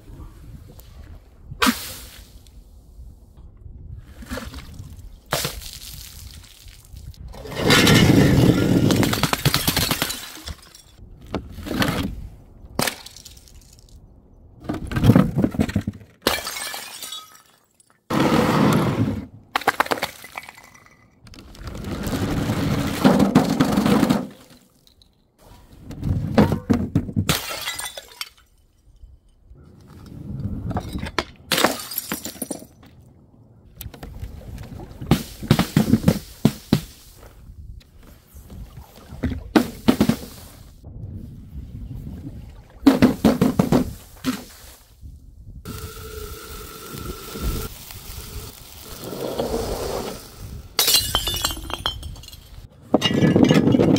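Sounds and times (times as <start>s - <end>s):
glass bottles shattering: 7.8s - 11.0s, 16.2s - 17.9s, 27.3s - 28.8s, 30.8s - 32.8s, 50.8s - 53.9s.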